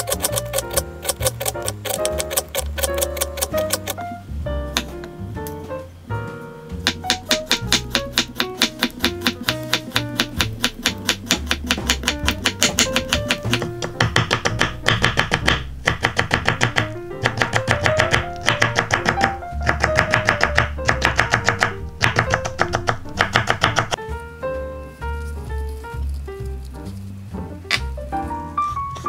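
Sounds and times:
light guitar music: 0.0 - 10.5, 24.0 - 29.0
knife chopping on wooden board: 6.8 - 24.0.

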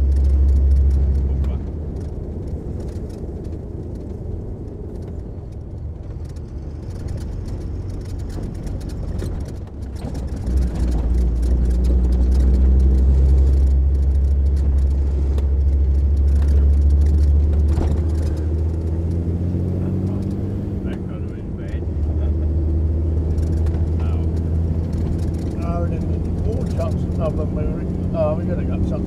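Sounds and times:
diesel truck engine driving: 0.0 - 29.0.

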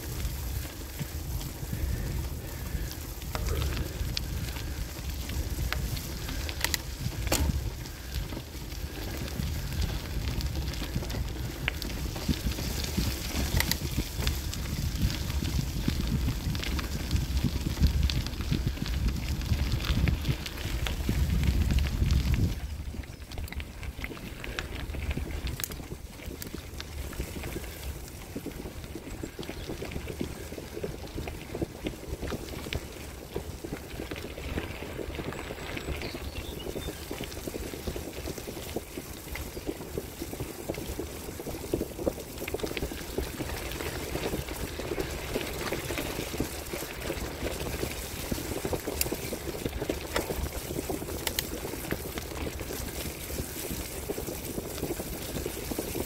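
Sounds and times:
bicycle tyres crunching on gravel: 0.0 - 56.0
small clicks and rattles: 1.8 - 16.9.

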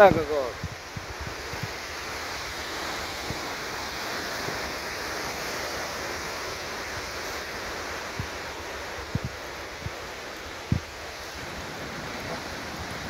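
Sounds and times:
surf breaking on rocks: 0.0 - 13.0
wind buffeting microphone: 0.0 - 13.0.

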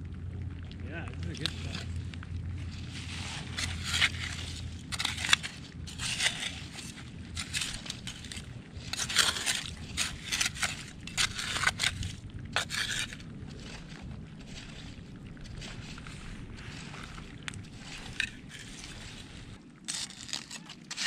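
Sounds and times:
trowel scraping through shells: 2.8 - 13.8, 16.6 - 21.0.

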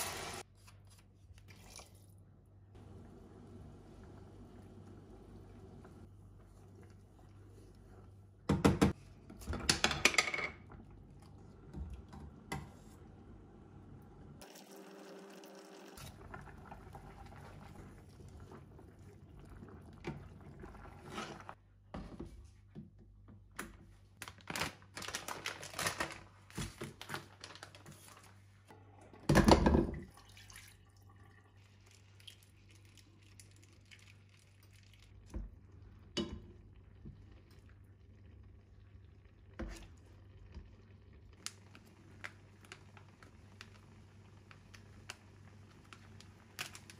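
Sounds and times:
wooden spoon stirring in saucepan: 2.8 - 9.7, 15.9 - 22.6.

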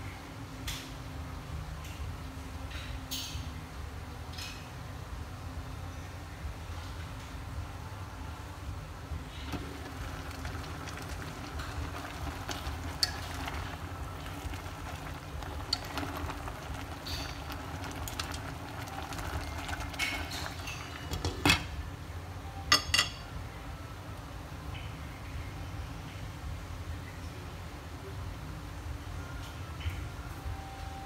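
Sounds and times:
pot boiling: 9.1 - 21.8
glass lid clinking on pot: 22.7 - 23.2.

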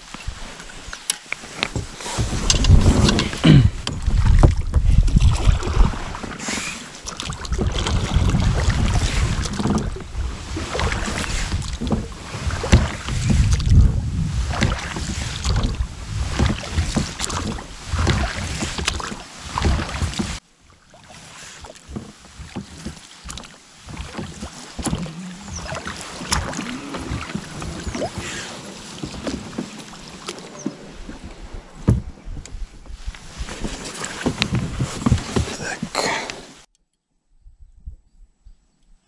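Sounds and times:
knocks and splashes from boat: 0.0 - 36.7
wind buffeting microphone: 1.8 - 6.3, 7.4 - 20.4.

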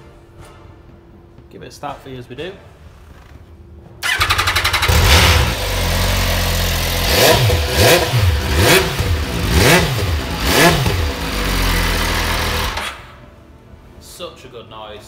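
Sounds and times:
electric starter cranking: 4.0 - 8.3, 8.9 - 13.2
motorcycle engine idling and revving: 4.0 - 13.2.

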